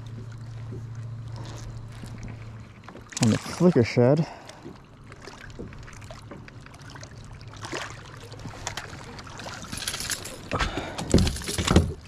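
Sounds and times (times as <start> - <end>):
water splashing and sloshing: 0.0 - 12.0.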